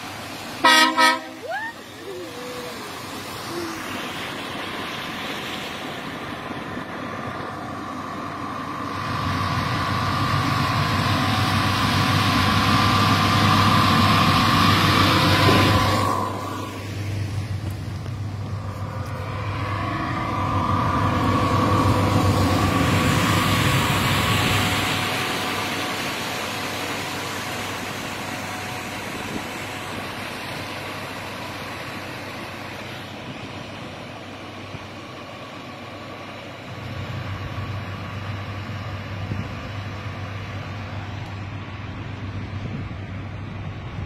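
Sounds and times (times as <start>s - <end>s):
boat diesel engine drone: 0.0s - 44.0s
low rumble: 6.1s - 25.8s.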